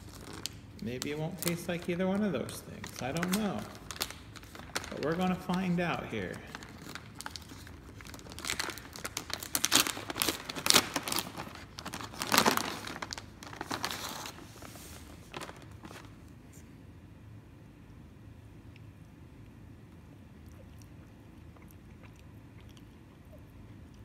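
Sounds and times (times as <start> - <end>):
plastic wrapper crinkling and tearing: 0.0 - 16.3.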